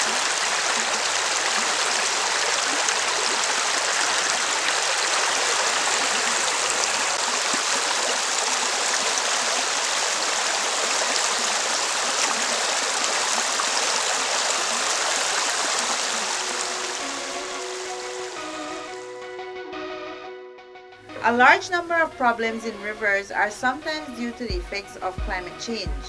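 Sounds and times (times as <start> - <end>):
rushing stream water: 0.0 - 19.1.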